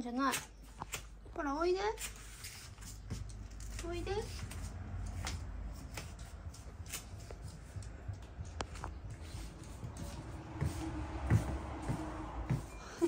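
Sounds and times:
footsteps on wooden floor: 7.2 - 13.0.

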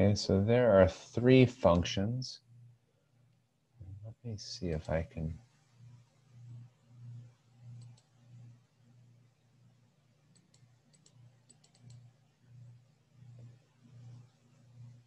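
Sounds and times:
faint low hum: 0.0 - 15.0
computer mouse clicks: 6.4 - 8.5, 10.3 - 12.1.

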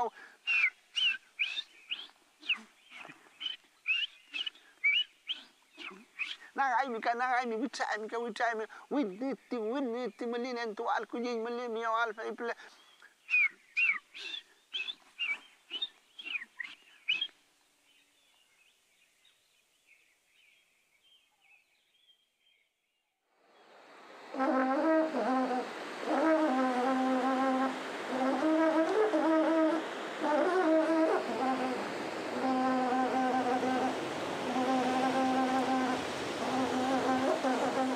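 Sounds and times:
man imitating bird chirps: 0.0 - 7.0, 13.3 - 17.3
steady rushing noise: 23.4 - 37.9
buzzy horn-like melody: 24.3 - 37.9.

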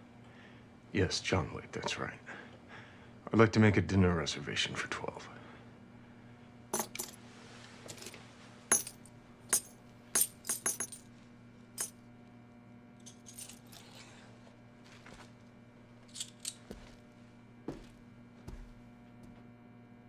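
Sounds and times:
faint low hum: 0.0 - 20.0
coins clinking on wooden desk: 6.8 - 7.2, 7.9 - 11.1, 13.0 - 14.0, 16.1 - 16.9
handling sounds: 6.8 - 7.2, 16.0 - 17.0.

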